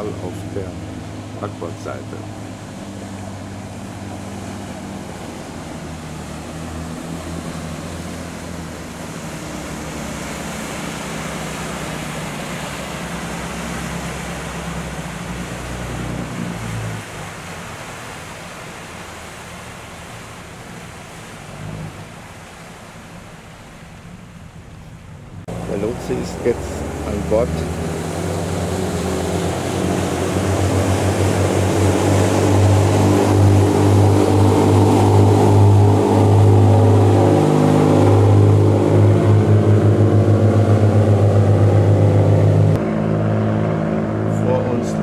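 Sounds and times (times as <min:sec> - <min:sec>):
low engine hum: 0:00.0 - 0:45.0
water rushing past ship: 0:00.0 - 0:45.0
wind rushing: 0:26.3 - 0:42.8.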